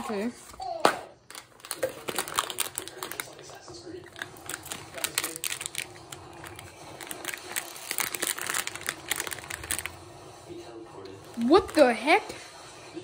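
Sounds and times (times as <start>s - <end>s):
plastic packet crinkling: 1.2s - 10.0s, 11.2s - 11.9s.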